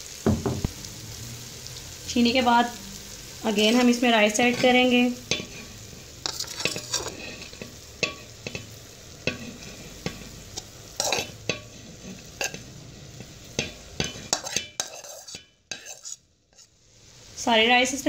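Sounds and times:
frying sizzle: 0:00.0 - 0:18.0
spoon scraping a plate: 0:04.5 - 0:16.7.

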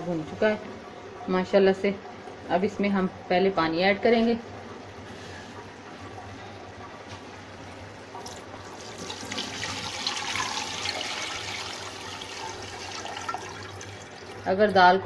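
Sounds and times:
water pouring into metal pot: 0:08.2 - 0:14.5.

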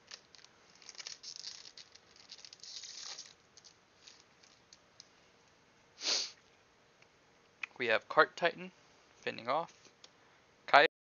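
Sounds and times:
wrapper crinkling and tearing: 0:00.0 - 0:04.8.

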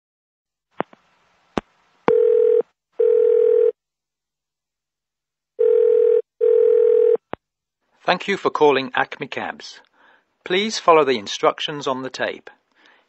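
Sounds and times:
telephone ringing tone: 0:02.1 - 0:03.8, 0:05.6 - 0:07.2.

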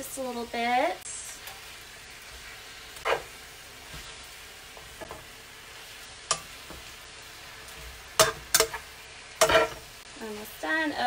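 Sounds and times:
spinach sizzling in hot oil: 0:00.0 - 0:11.0
tongs scraping and clicking on pan: 0:01.3 - 0:10.0.

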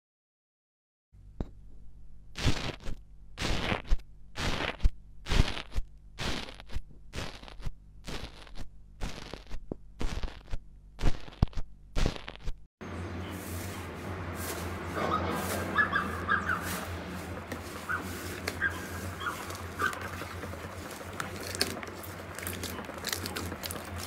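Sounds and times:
slime crackling under tool: 0:02.4 - 0:12.6, 0:19.3 - 0:24.0
steady low hum and hiss: 0:03.0 - 0:03.4.

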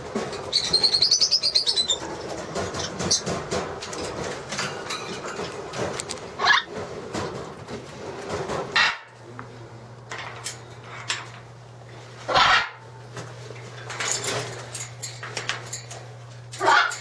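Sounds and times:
rattles and knocks: 0:00.0 - 0:01.0, 0:01.7 - 0:09.0, 0:13.1 - 0:17.0
steady low hum: 0:00.0 - 0:17.0.

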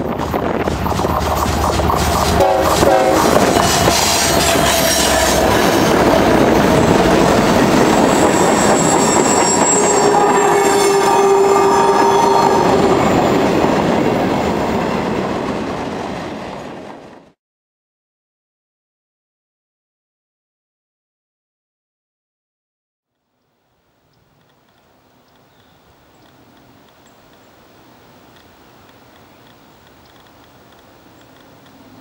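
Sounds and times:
diesel locomotives rumbling: 0:00.0 - 0:17.4, 0:25.0 - 0:32.0
freight cars rolling on rails: 0:00.0 - 0:17.4
high wheel squeal: 0:01.1 - 0:13.6.

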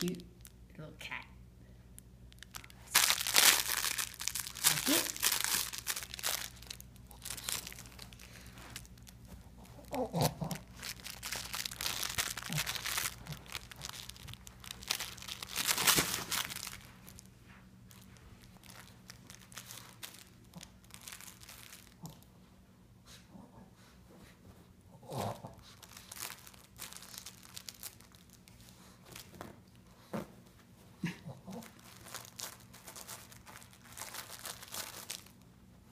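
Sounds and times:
paper crumpling and tearing: 0:02.4 - 0:17.2, 0:31.6 - 0:35.4.

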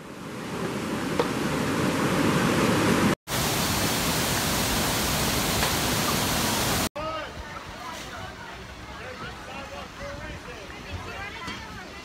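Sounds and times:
ocean surf breaking: 0:00.0 - 0:06.9
waterfall pouring into pool: 0:03.3 - 0:06.9.

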